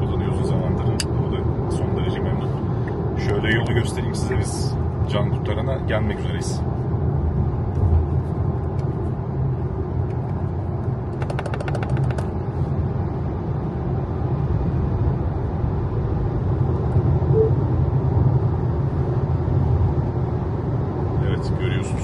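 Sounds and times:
tyre and road noise in car: 0:06.6 - 0:21.2
rapid rattle of clicks: 0:11.1 - 0:12.3.

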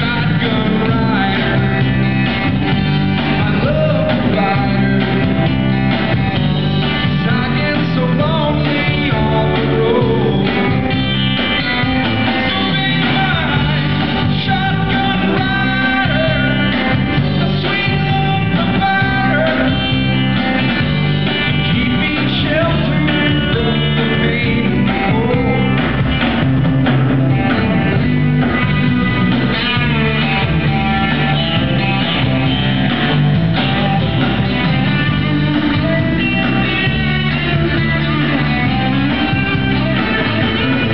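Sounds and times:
man singing: 0:00.0 - 0:02.4, 0:03.2 - 0:05.7, 0:07.0 - 0:20.4, 0:21.4 - 0:26.0
electric bass guitar: 0:00.0 - 0:40.9.

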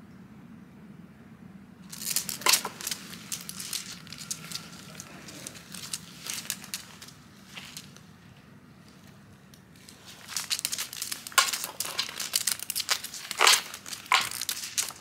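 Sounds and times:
dog claws clicking on tiles: 0:01.9 - 0:08.0, 0:09.8 - 0:15.0.

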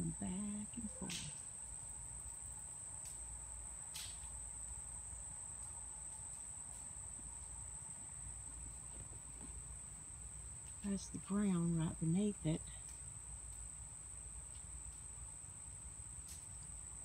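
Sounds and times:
faint low rumble: 0:00.0 - 0:01.4.

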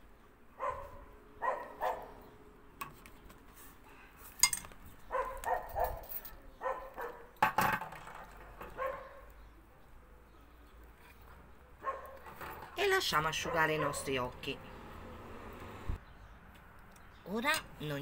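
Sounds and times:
dog yapping: 0:00.6 - 0:02.2, 0:05.1 - 0:06.0, 0:06.6 - 0:07.3, 0:08.8 - 0:09.3, 0:11.8 - 0:12.3, 0:13.4 - 0:14.1.

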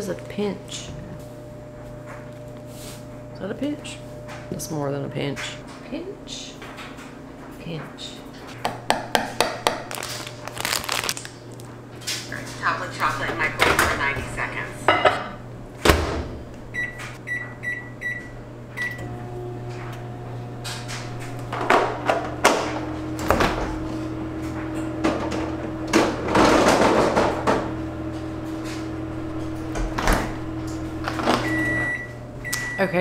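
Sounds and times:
microwave oven humming: 0:00.0 - 0:33.0
microwave keypad beeping: 0:16.7 - 0:19.1, 0:31.3 - 0:33.0.

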